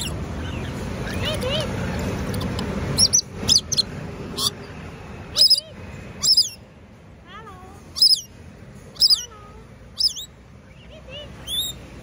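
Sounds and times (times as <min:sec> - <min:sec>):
parrot screeching: 0:00.0 - 0:01.9, 0:03.0 - 0:04.6, 0:05.3 - 0:05.6, 0:06.2 - 0:06.6, 0:08.0 - 0:08.3, 0:08.9 - 0:09.3, 0:10.0 - 0:10.4, 0:11.4 - 0:11.8
parrot chirps: 0:00.0 - 0:06.7, 0:07.9 - 0:09.3, 0:09.9 - 0:11.9.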